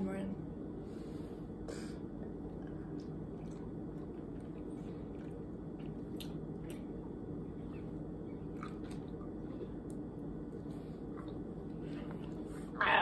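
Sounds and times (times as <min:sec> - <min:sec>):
low room hum: 0:00.0 - 0:13.0
sharp mouth clicks and smacks: 0:05.2 - 0:06.9.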